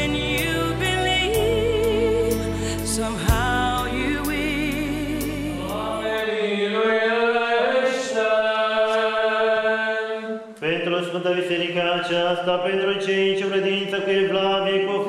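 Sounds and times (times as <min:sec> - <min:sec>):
song with vibrato singing voice: 0:00.0 - 0:12.2
church choir chanting: 0:04.9 - 0:15.0.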